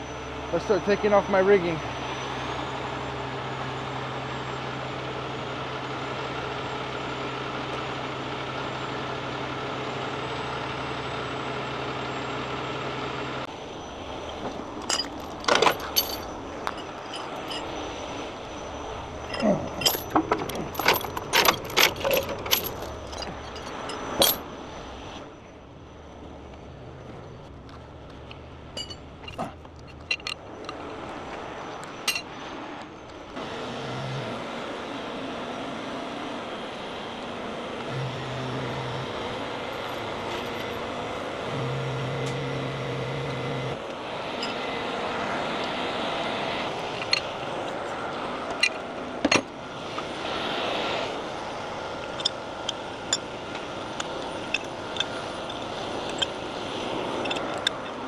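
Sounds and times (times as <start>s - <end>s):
tow truck engine running: 0.0s - 58.0s
metal chains clanking: 14.4s - 24.8s, 27.2s - 30.8s, 31.6s - 32.4s, 39.6s - 40.9s, 46.7s - 47.8s, 52.0s - 52.4s, 53.0s - 58.0s.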